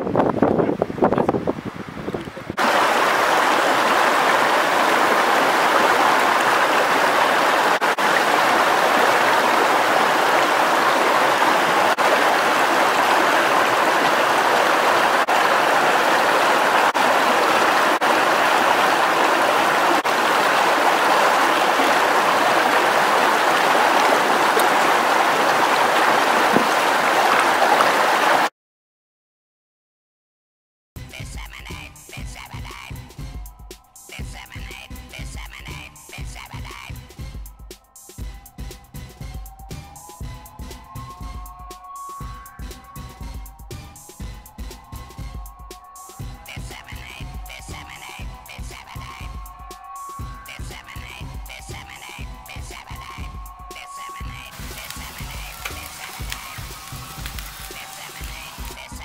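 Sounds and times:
stream rushing over stones: 1.4s - 28.5s, 45.9s - 59.0s.

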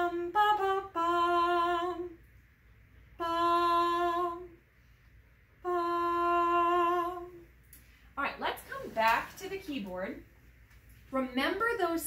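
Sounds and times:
woman singing wordlessly: 0.0s - 2.2s, 3.2s - 4.6s, 5.6s - 7.5s.

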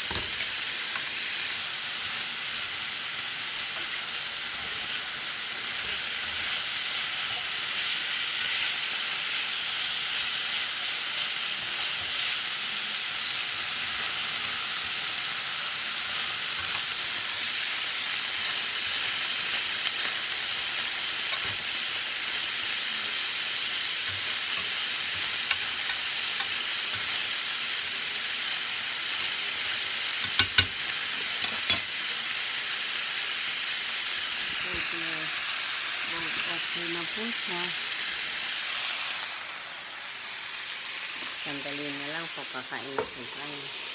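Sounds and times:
vegetables sizzling in a pan: 0.0s - 43.9s
tongs clacking against pan: 24.1s - 27.2s, 30.2s - 30.8s, 31.4s - 31.9s.

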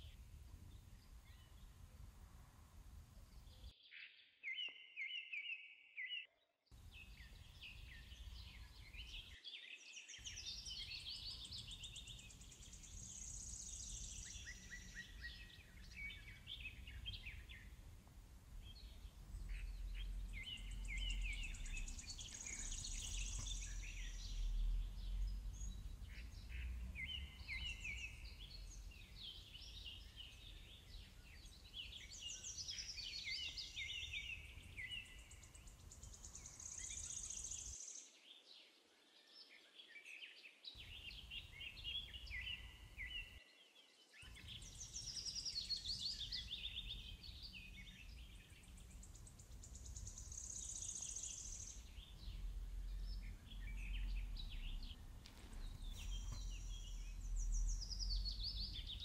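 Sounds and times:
birds singing: 3.3s - 59.0s
faint low rumble: 15.6s - 31.6s, 47.0s - 59.0s.

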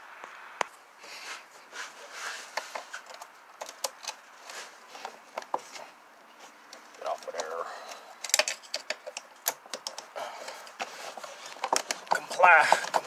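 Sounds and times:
plastic parts rustling: 2.0s - 13.0s.

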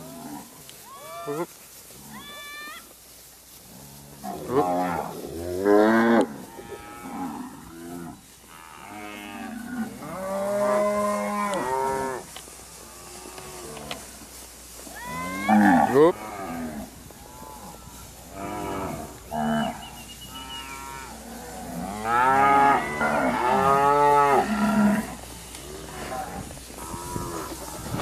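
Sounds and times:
cattle mooing: 15.2s - 27.6s.

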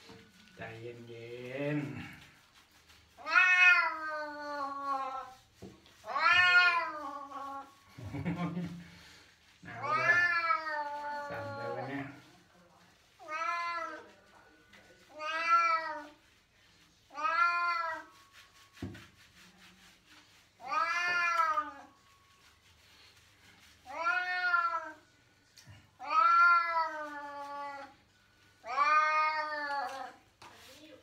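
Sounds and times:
cat meowing: 3.2s - 5.3s, 6.1s - 7.4s, 9.8s - 11.8s, 17.1s - 18.1s, 20.6s - 21.9s, 23.9s - 25.0s, 26.0s - 27.9s, 28.7s - 30.1s.

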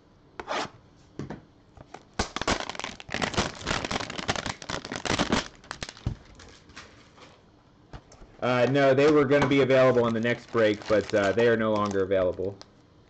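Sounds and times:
packaging crinkling: 1.9s - 7.3s, 8.9s - 12.8s.

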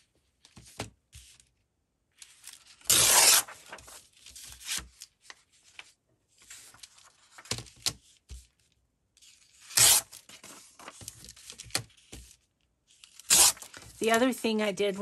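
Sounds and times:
paper rustling: 2.2s - 8.0s, 9.2s - 12.4s
paper ripping: 2.7s - 4.0s, 9.5s - 11.0s, 13.1s - 13.9s.

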